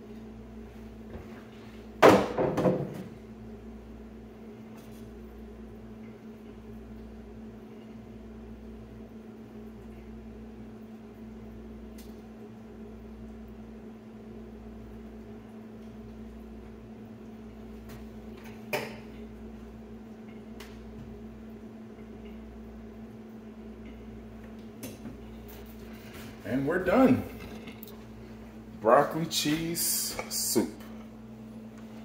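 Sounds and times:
kitchen fan humming: 0:00.0 - 0:32.0
loud knock: 0:02.0 - 0:03.1.

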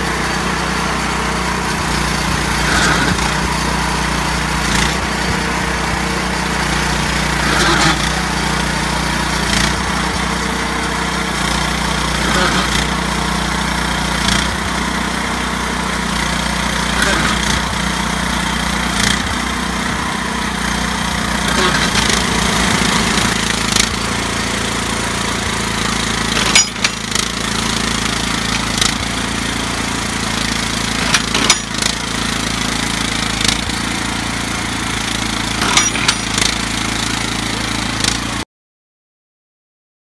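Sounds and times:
small engine running: 0:00.0 - 0:38.4
sharp metal clanks: 0:26.3 - 0:27.3, 0:30.9 - 0:32.0, 0:35.5 - 0:36.6.

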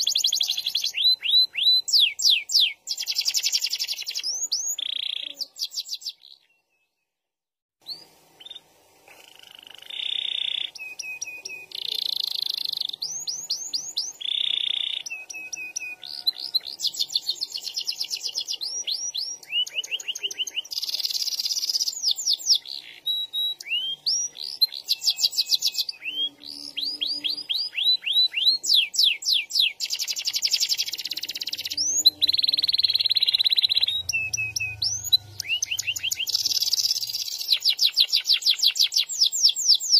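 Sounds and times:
canary singing: 0:00.0 - 0:07.0, 0:07.8 - 0:39.9.

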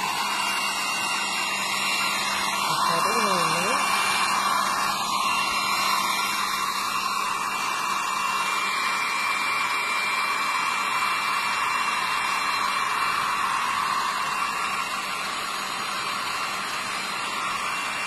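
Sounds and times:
blow dryer running: 0:00.0 - 0:18.0.

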